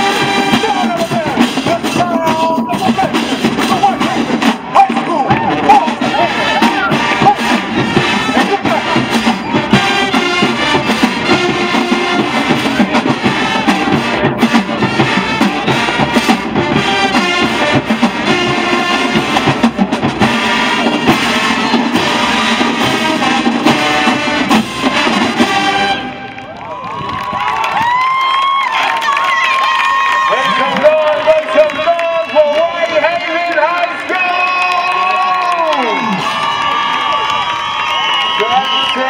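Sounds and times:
snare and bass drums: 0.0 - 26.0
brass and sousaphones playing: 0.0 - 26.6.

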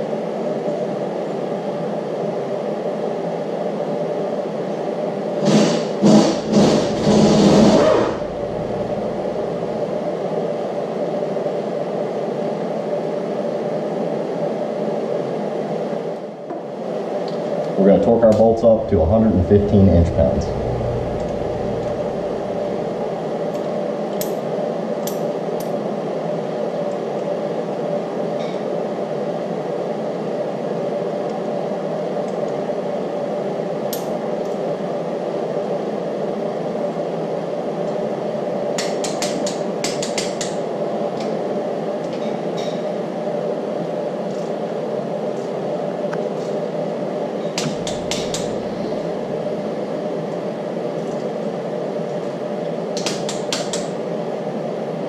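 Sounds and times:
steady background hum: 0.0 - 55.0
wrench clicking: 47.6 - 48.5.

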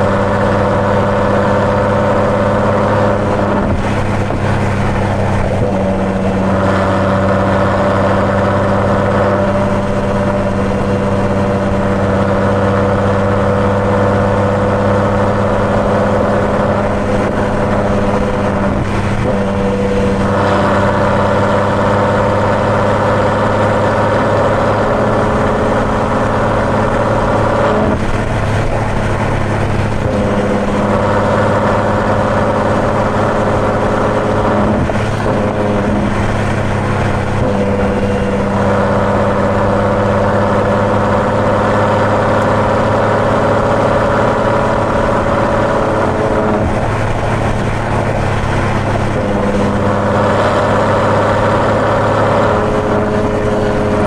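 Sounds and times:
car engine cruising: 0.0 - 54.0
tyre and road noise: 0.0 - 54.0.

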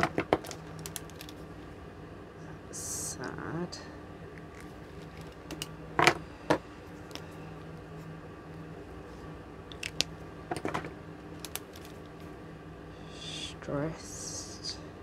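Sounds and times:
pens clicking and tapping: 0.0 - 1.4, 4.5 - 6.2, 9.7 - 12.0
room heater whirring: 0.0 - 15.0.

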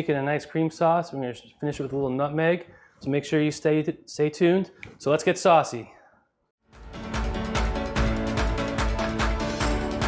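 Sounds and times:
theme music with steady beat: 6.6 - 10.0.

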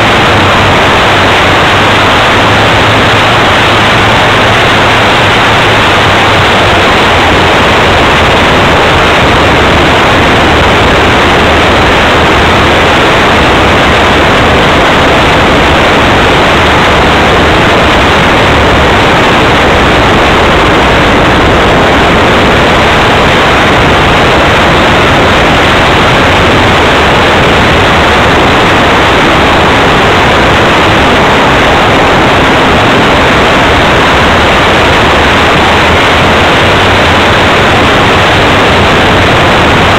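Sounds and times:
wind rushing: 0.0 - 39.9.

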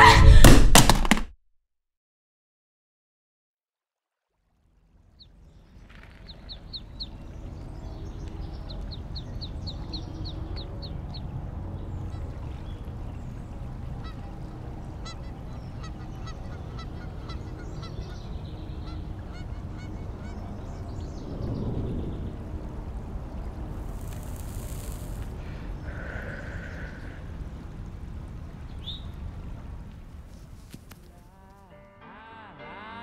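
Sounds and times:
low outdoor ambience: 4.4 - 32.1
geese honking: 13.9 - 20.7.

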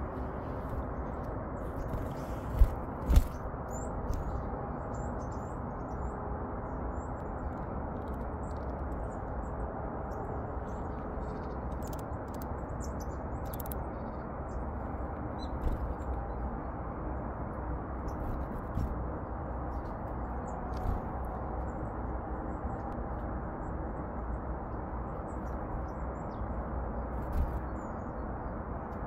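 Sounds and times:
small birds calling: 0.0 - 7.5, 8.4 - 16.5.

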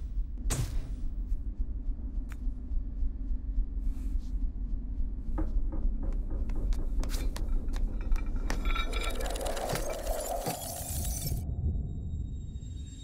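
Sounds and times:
steady low rumble: 0.0 - 9.5.

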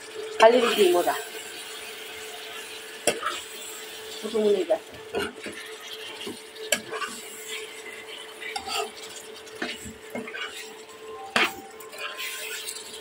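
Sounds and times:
metal spoon scraping a pan: 1.9 - 3.8, 5.1 - 13.0.

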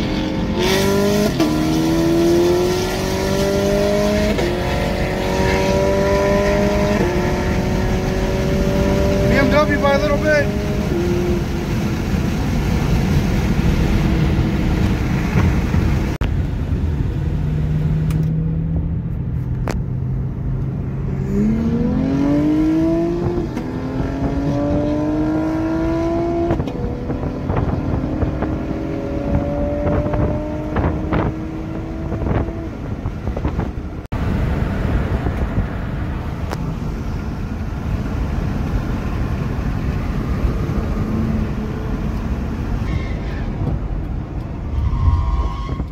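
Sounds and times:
car engine accelerating through gears: 0.0 - 16.2, 17.0 - 36.6
heavy road noise: 0.0 - 45.9.

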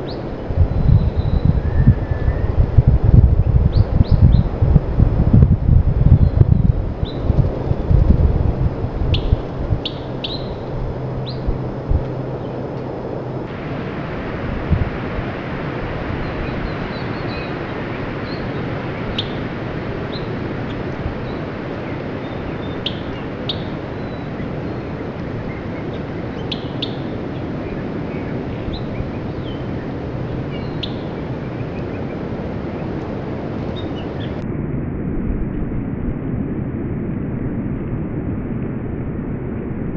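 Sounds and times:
songbirds chirping: 0.0 - 5.1, 6.0 - 34.4.

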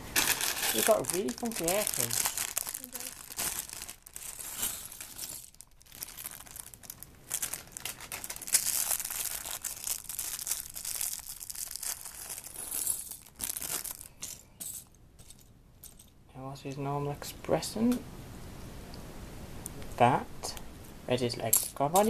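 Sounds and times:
plastic bag crinkling: 0.0 - 15.4.

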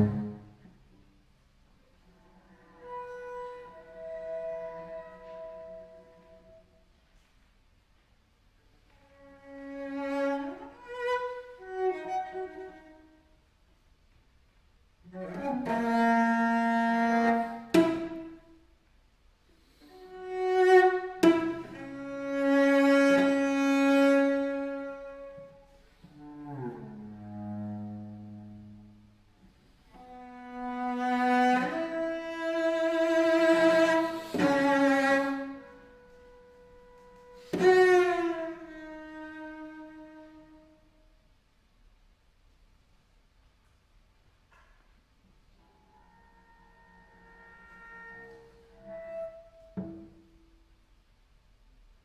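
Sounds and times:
bowed cello notes: 0.0 - 1.2, 1.9 - 6.9, 8.9 - 13.5, 15.0 - 18.8, 19.6 - 41.0, 45.4 - 50.8.

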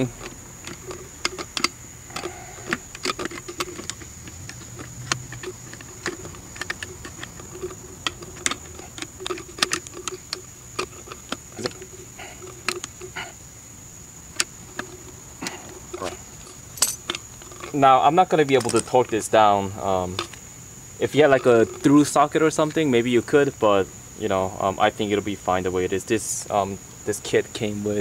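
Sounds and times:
metal hardware clicking: 0.0 - 13.2, 14.2 - 19.4, 20.1 - 20.4.

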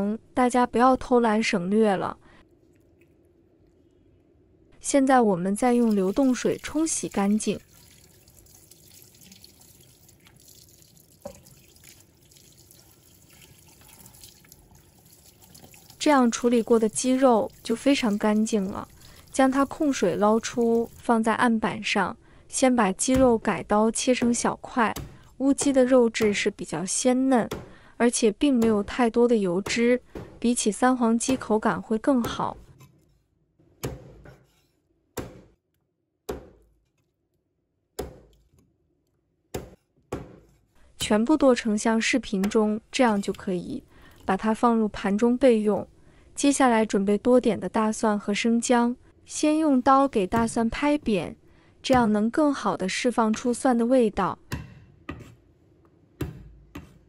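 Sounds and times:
tap water splashing in a sink: 5.8 - 21.1.

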